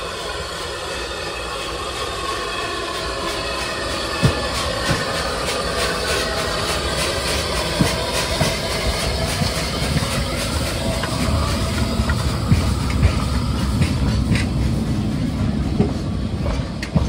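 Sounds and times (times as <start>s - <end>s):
locomotive exhaust chuffs: 0.0s - 17.0s
steam hissing: 0.0s - 17.0s.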